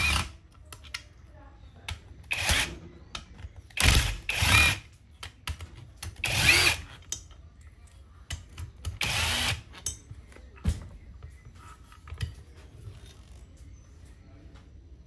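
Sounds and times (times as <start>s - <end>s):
cordless drill spinning: 0.0s - 0.3s, 2.3s - 2.7s, 3.8s - 4.9s, 6.2s - 7.0s, 9.0s - 9.7s.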